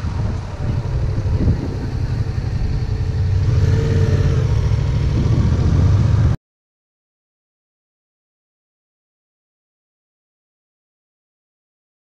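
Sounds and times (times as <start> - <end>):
motorcycle engine rumbling: 0.0 - 6.4.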